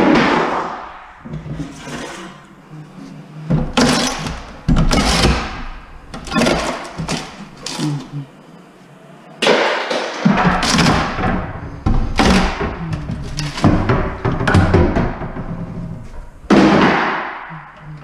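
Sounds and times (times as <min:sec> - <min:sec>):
banging on wooden cabinets: 0:09.9 - 0:18.0.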